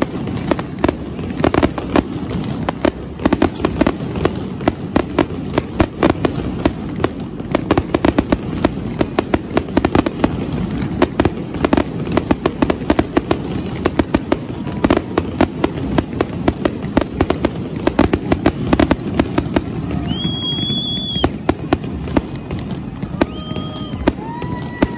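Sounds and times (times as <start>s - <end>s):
fireworks shell bursts cracking: 3.5s - 3.8s.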